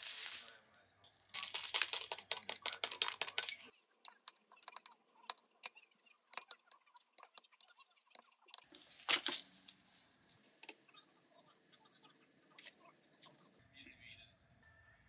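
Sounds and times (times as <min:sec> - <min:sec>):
seaweed sheet handling sounds: 0:00.0 - 0:00.6, 0:01.3 - 0:03.7, 0:08.7 - 0:10.2
spatula squishing sticky rice: 0:01.4 - 0:13.6
spatula tapping glass bowl: 0:02.0 - 0:08.6.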